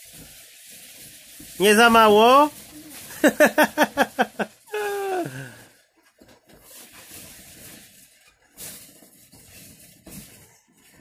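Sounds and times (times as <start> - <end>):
balloons rustling: 0.0 - 11.0
child giggling: 2.8 - 5.4
child's falling vocal sound: 4.7 - 5.6.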